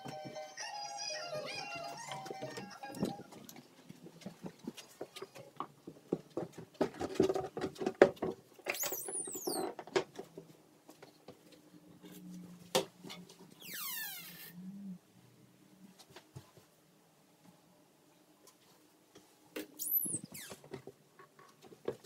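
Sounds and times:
door squeaks: 8.7s - 9.8s, 13.6s - 14.6s, 19.8s - 20.7s.

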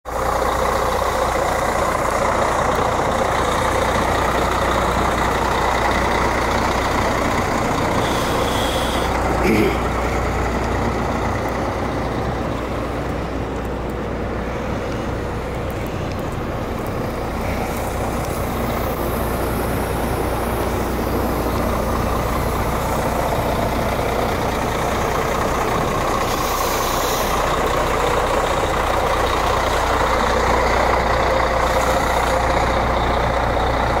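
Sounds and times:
diesel truck engine idling: 0.1s - 34.0s
short hiss: 8.0s - 9.1s.

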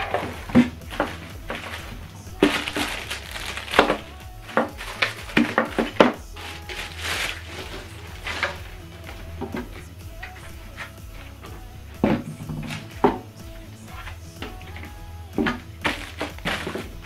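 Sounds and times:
plastic bags crinkling: 0.0s - 11.4s, 15.8s - 17.0s.

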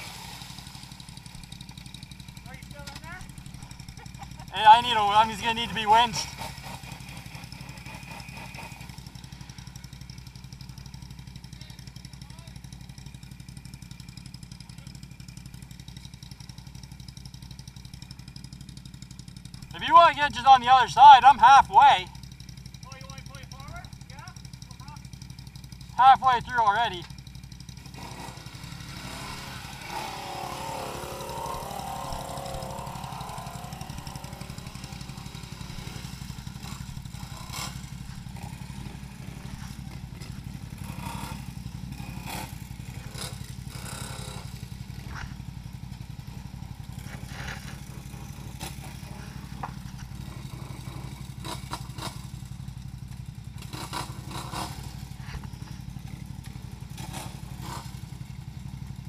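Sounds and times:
atv engine running: 0.0s - 59.0s.

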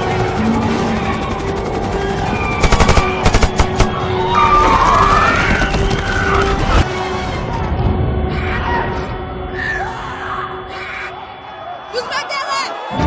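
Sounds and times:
rapid gunfire: 2.6s - 4.2s.

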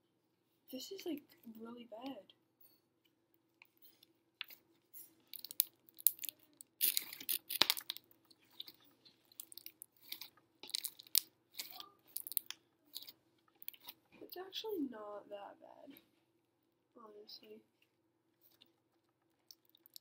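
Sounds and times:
slime squeezed with wet crackles: 5.3s - 14.0s, 19.4s - 20.0s.

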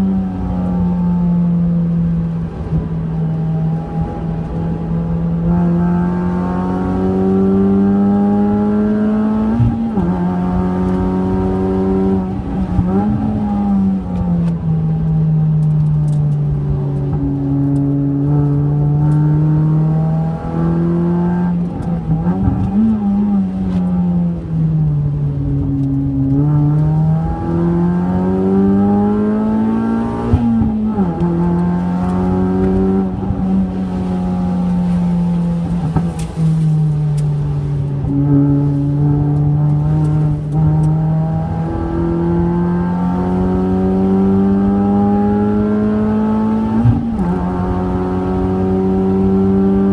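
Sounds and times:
car engine revving: 0.0s - 49.9s.

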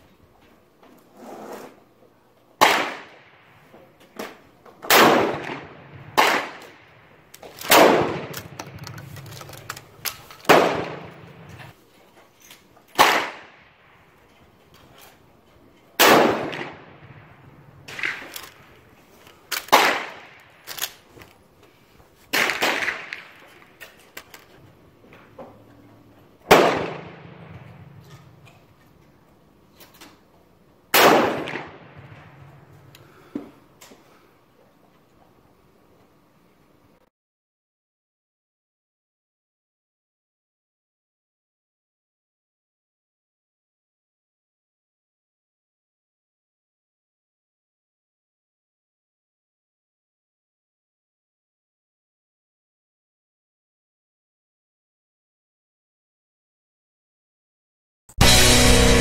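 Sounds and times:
gunshots with echo: 2.6s - 3.5s, 4.9s - 6.9s, 7.6s - 11.7s, 16.0s - 18.4s, 26.5s - 28.3s, 30.9s - 32.5s.

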